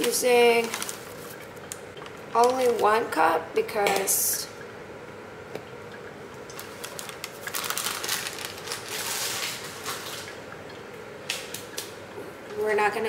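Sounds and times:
bag crinkling and rustling: 0:00.0 - 0:02.9, 0:06.5 - 0:10.3.

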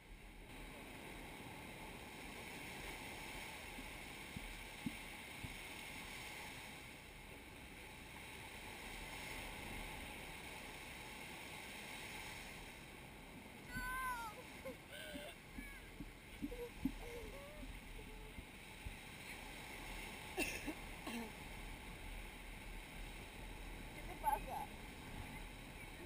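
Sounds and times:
surf washing up sand: 0:00.5 - 0:26.0
wind on microphone: 0:08.1 - 0:26.0.

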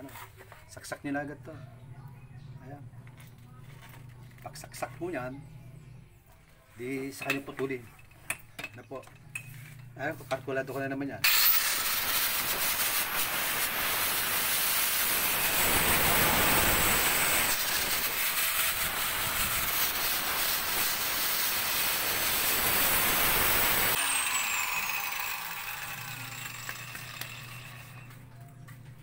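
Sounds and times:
angle grinder cutting pipe: 0:11.2 - 0:28.2
grinder winding down whine: 0:11.2 - 0:28.3.

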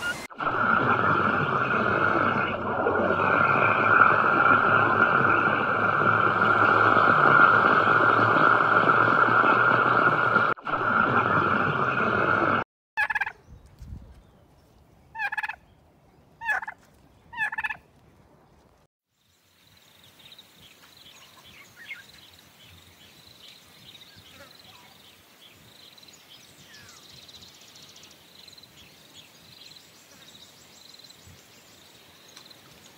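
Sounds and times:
underwater rushing noise: 0:00.0 - 0:12.7
turkey gobbling: 0:13.0 - 0:13.4, 0:15.2 - 0:15.6, 0:16.4 - 0:16.8, 0:17.4 - 0:17.8.

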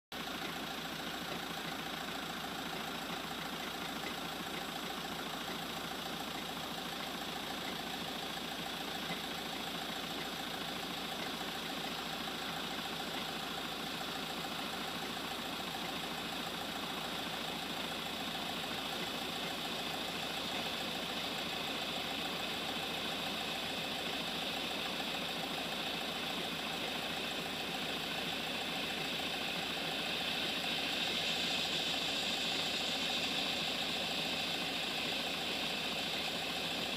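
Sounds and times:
vehicle engine idling: 0:00.1 - 0:36.9.

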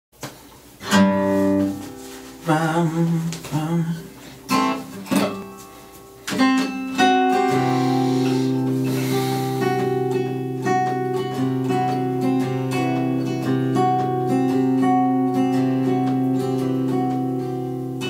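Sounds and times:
acoustic guitar: 0:00.2 - 0:18.0.

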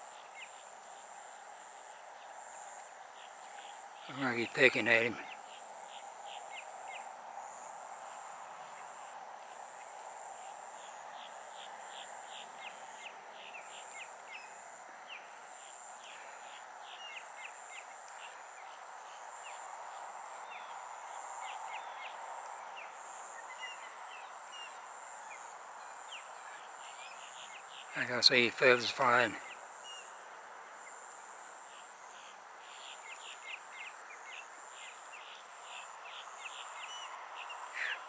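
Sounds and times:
insects trilling: 0:00.0 - 0:38.0
small birds chirping: 0:32.0 - 0:38.0.

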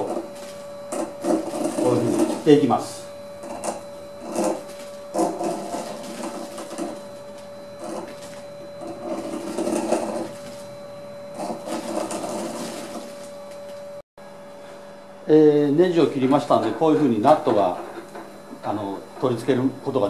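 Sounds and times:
faint steady hum: 0:00.0 - 0:20.0
threading die scraping brass: 0:00.9 - 0:02.5, 0:03.4 - 0:07.0, 0:07.7 - 0:08.1, 0:08.8 - 0:10.4, 0:11.3 - 0:13.0.

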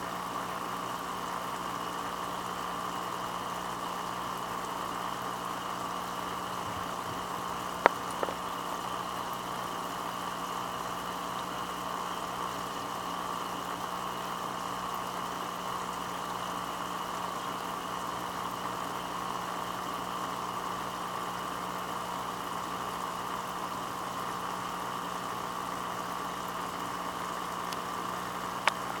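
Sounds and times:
constant low hum: 0:05.2 - 0:10.0
water bubbling: 0:06.3 - 0:08.7.

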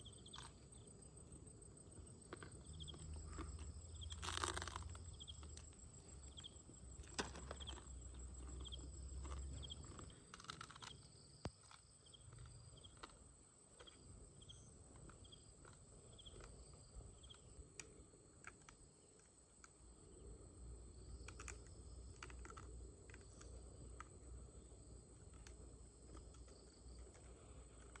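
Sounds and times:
short insect chirp: 0:00.0 - 0:13.2, 0:13.8 - 0:25.6
small clicks: 0:02.3 - 0:13.2, 0:14.9 - 0:19.8, 0:21.1 - 0:24.2.

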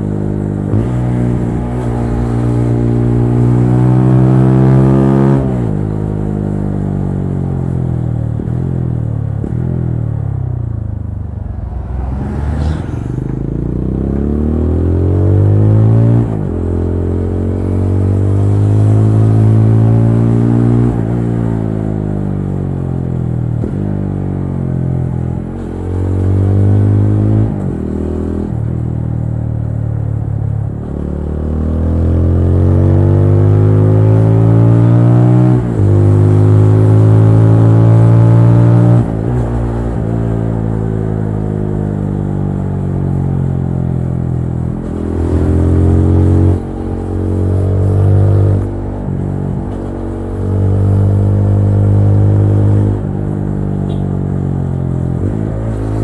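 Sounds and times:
motorcycle engine revving: 0:30.6 - 0:56.0.

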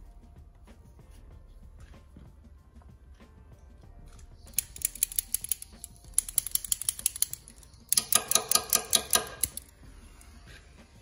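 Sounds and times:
torch igniter clicking rapidly: 0:04.5 - 0:09.7.

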